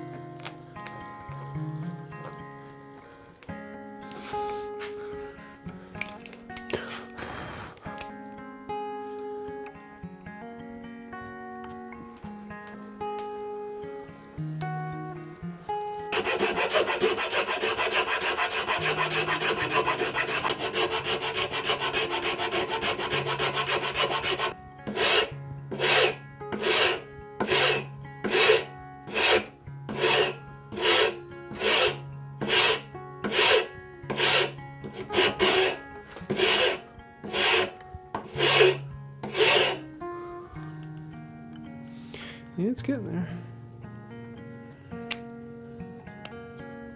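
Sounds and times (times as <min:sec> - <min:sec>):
soft background music: 0:00.0 - 0:46.9
auger bit scraping wood: 0:16.1 - 0:39.8
file rasping across wood: 0:16.1 - 0:39.8.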